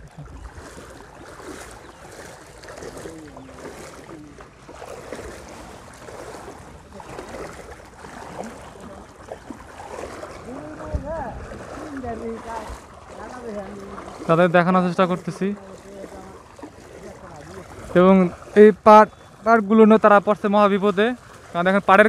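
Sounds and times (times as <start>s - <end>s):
wading through water: 0.0s - 22.0s
wind on microphone: 9.8s - 12.9s.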